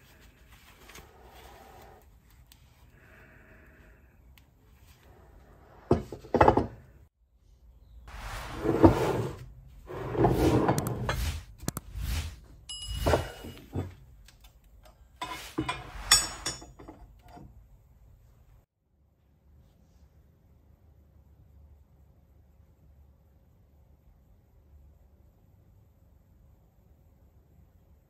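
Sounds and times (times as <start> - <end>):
metal castings on wooden bench: 5.8 - 7.0, 12.6 - 17.6.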